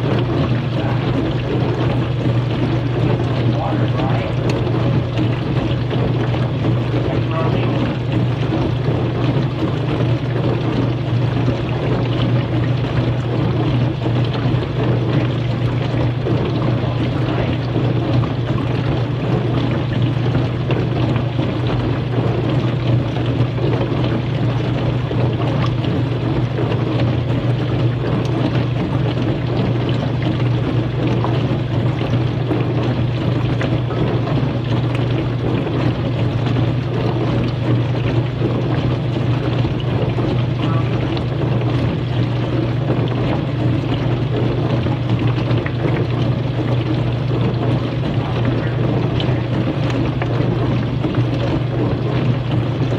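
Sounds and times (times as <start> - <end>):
dishwasher motor hum: 0.0 - 52.9
water spraying inside dishwasher: 0.0 - 52.9.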